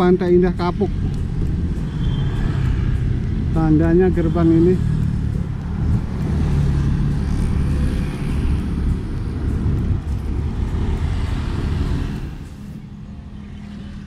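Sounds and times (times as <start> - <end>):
motorcycle engines: 0.0 - 14.0
wind on microphone: 0.0 - 14.0.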